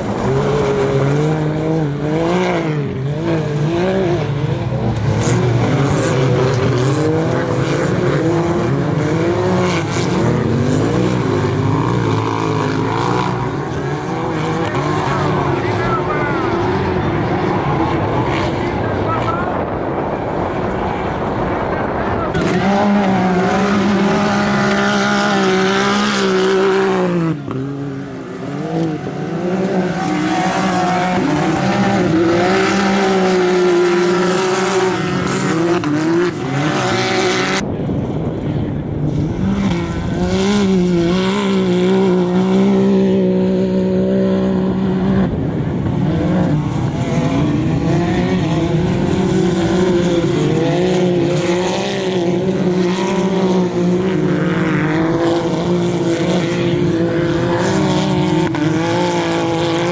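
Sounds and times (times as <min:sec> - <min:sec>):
engines revving: 0:00.0 - 0:59.9.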